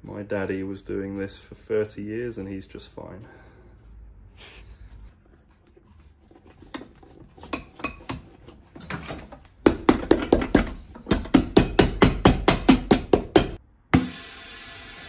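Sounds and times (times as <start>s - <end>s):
hammer striking rubber sole: 9.6s - 13.6s.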